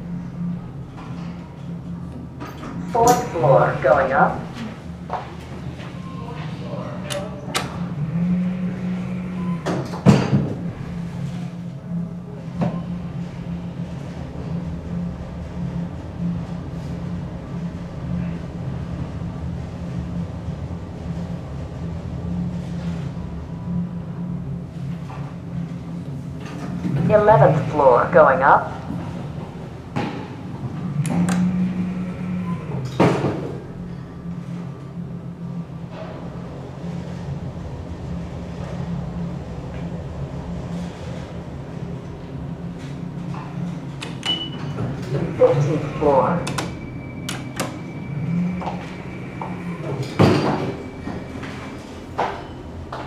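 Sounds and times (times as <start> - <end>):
elevator doors sliding shut: 0.0 - 53.0
steady low hum: 0.0 - 53.0
elevator starting click: 30.7 - 33.0, 46.4 - 52.7.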